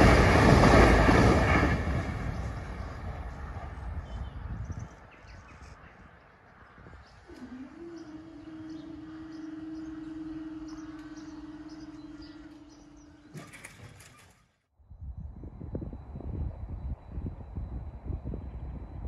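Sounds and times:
birds chirping: 0:02.2 - 0:14.4
barrier mechanism whine: 0:07.3 - 0:14.5
barrier rattle: 0:13.2 - 0:14.6.

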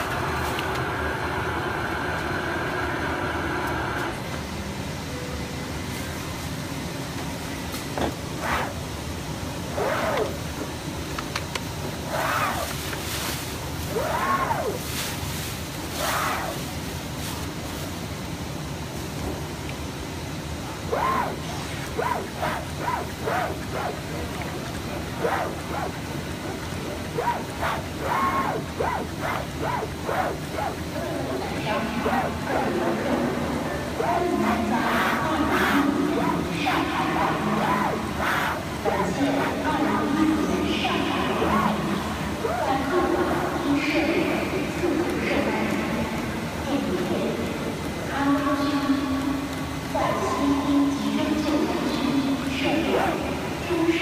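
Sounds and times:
background noise: 0:00.0 - 0:54.0
machine hum: 0:00.0 - 0:54.0
background hubbub: 0:20.0 - 0:54.0.

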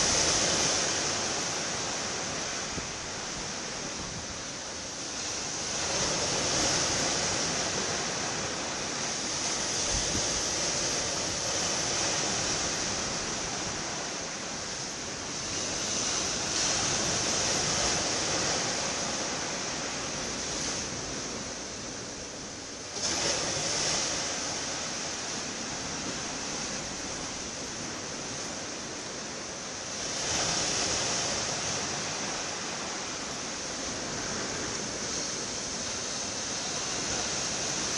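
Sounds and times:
sea water rushing: 0:00.0 - 0:37.9
wind: 0:00.0 - 0:37.9.

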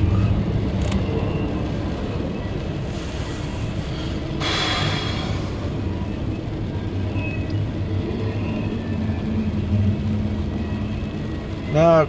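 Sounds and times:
freight train rumbling past: 0:00.0 - 0:12.0
burst of hiss: 0:03.0 - 0:05.6.

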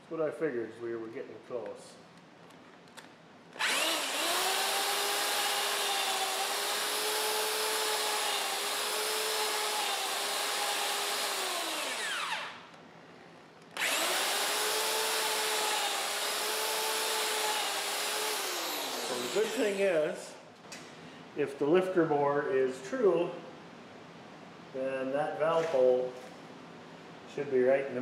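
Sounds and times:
electric drill boring metal: 0:03.6 - 0:12.6, 0:13.8 - 0:19.8.

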